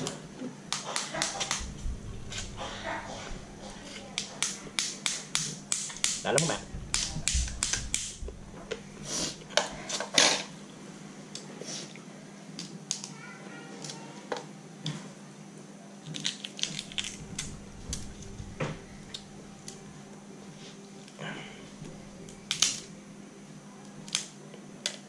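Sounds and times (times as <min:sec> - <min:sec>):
crab shell clicking and crackling: 0:00.7 - 0:01.7, 0:04.0 - 0:08.2, 0:16.0 - 0:18.0, 0:22.2 - 0:22.9, 0:24.0 - 0:25.0.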